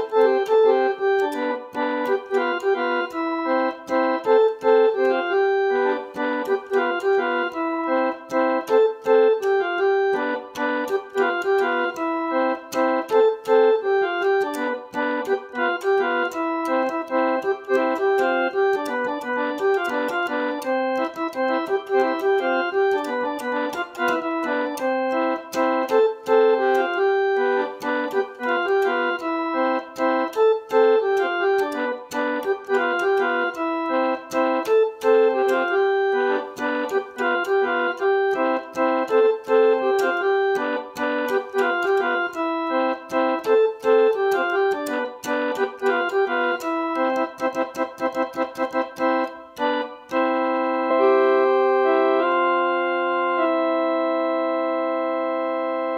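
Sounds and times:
electronic keyboard melody: 0:00.0 - 0:55.9.

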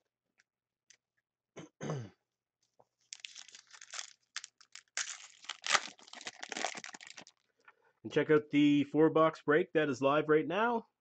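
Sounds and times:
foil wrapper tearing and crinkling: 0:03.1 - 0:07.4.

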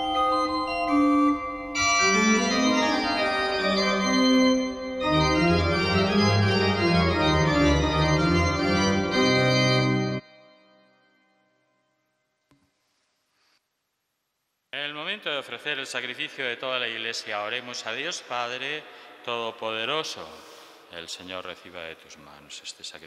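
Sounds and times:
church organ chords: 0:00.0 - 0:10.4.

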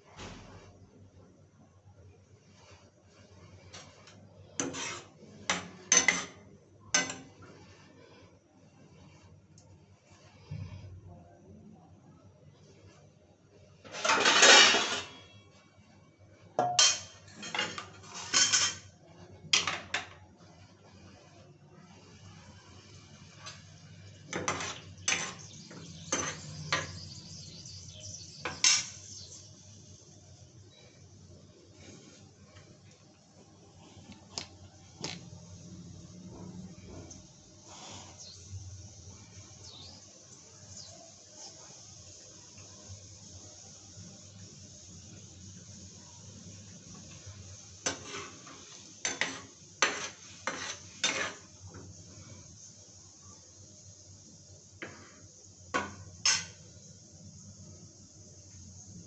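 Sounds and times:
spoon knocking and scraping pan: 0:03.5 - 0:07.9, 0:16.6 - 0:20.2, 0:22.7 - 0:27.6, 0:28.4 - 0:29.2, 0:47.8 - 0:51.9, 0:54.8 - 0:56.6.

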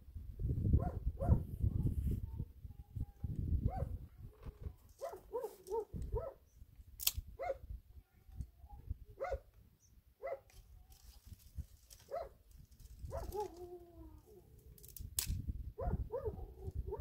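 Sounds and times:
sharp click: 0:07.0 - 0:07.2.

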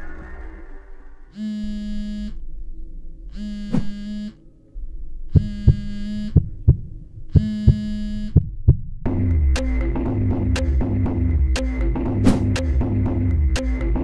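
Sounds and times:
phone buzzing on tabletop: 0:01.4 - 0:02.4, 0:03.3 - 0:04.4, 0:05.4 - 0:06.4, 0:07.3 - 0:08.4
dull thumps: 0:05.4 - 0:08.9.

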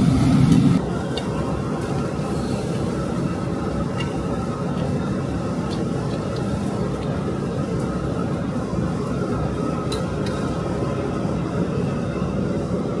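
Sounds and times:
kitchen equipment roaring: 0:00.0 - 0:13.0.

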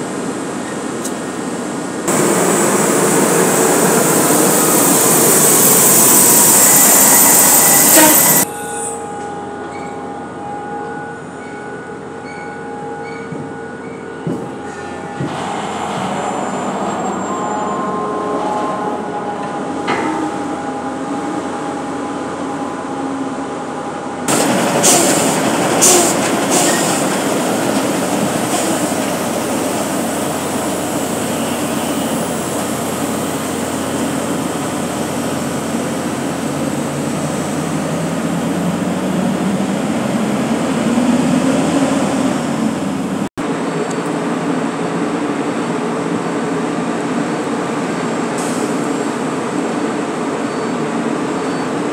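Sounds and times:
diesel trucks and machinery rumble: 0:00.0 - 0:05.6.

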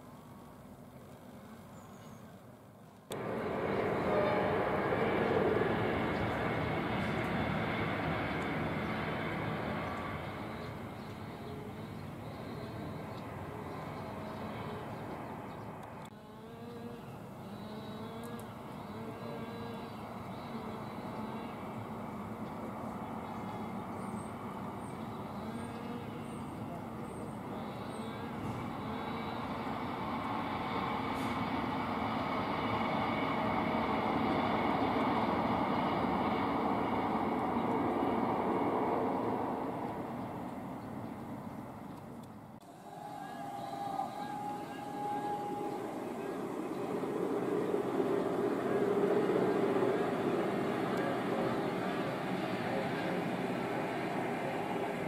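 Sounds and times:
distant engine drone: 0:00.0 - 0:55.0
train wheels rumbling on rails: 0:03.1 - 0:16.1, 0:28.3 - 0:41.8, 0:42.6 - 0:55.0.

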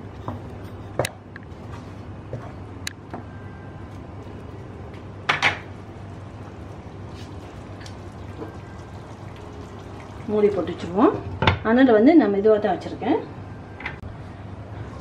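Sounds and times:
gravy simmering in a pan: 0:05.6 - 0:11.0.

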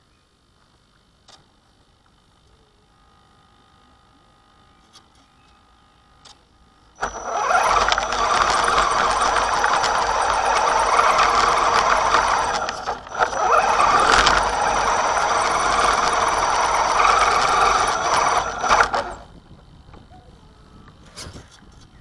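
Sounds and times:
electric motor whining: 0:06.9 - 0:21.2.

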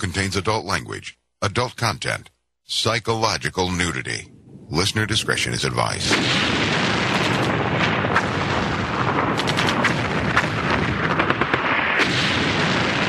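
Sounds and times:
rumbling explosions barrage: 0:04.4 - 0:13.0
sharp gunshot cracks: 0:06.0 - 0:13.0.

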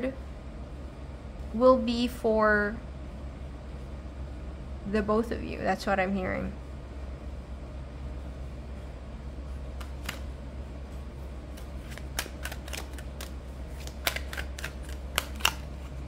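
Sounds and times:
steady low hum: 0:00.0 - 0:16.0
cards being shuffled: 0:09.8 - 0:10.3, 0:11.5 - 0:16.0.

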